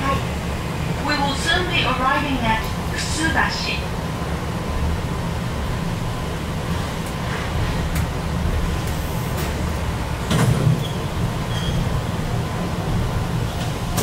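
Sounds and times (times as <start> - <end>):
train motors and wheels rumbling: 0.0 - 14.0
loud clunk: 10.3 - 10.9.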